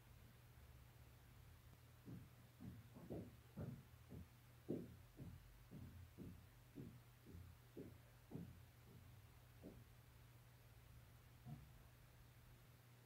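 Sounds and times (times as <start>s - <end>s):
low electrical hum: 0.0s - 13.0s
soft low thumps: 1.9s - 10.3s.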